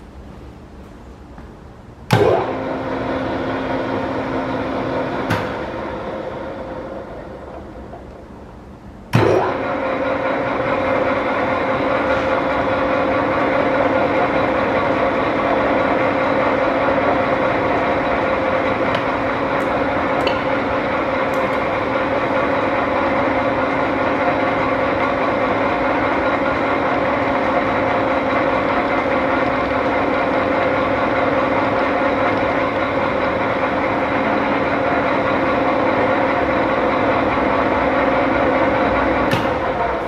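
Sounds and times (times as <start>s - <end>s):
lathe motor hum: 2.3s - 8.8s, 9.4s - 40.0s.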